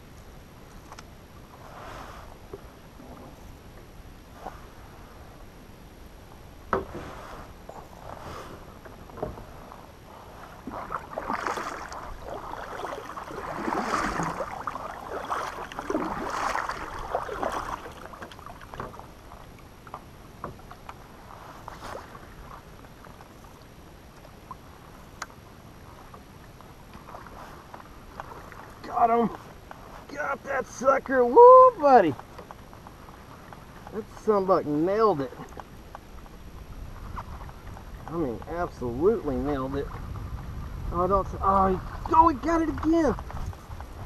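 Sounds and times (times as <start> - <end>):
paddle splashing through water: 6.3 - 38.5, 41.8 - 44.0
paddle knocking against boat: 6.6 - 7.2, 10.7 - 19.1.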